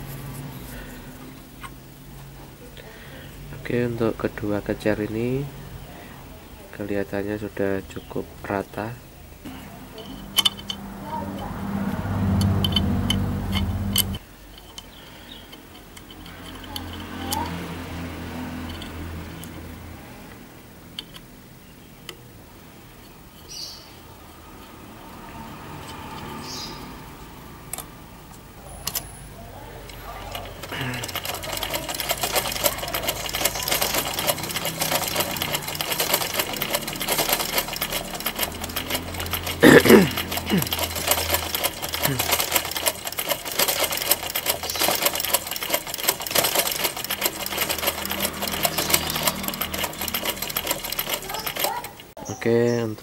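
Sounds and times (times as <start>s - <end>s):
sewing machine stitching: 10.0s - 19.9s, 29.8s - 52.2s
small metallic clicks: 10.0s - 21.4s, 23.0s - 29.2s, 29.8s - 52.2s.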